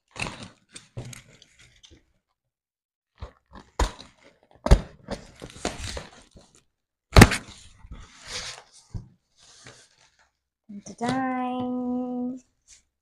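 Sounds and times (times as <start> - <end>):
cardboard crinkling and scraping: 0.0 - 2.2, 7.3 - 10.4.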